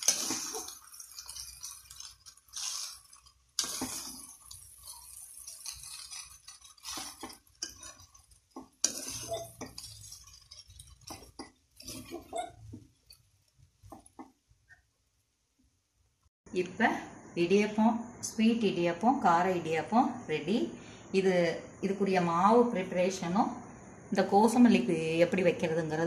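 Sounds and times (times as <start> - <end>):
metal spoon scraping a pan: 0.0 - 14.2.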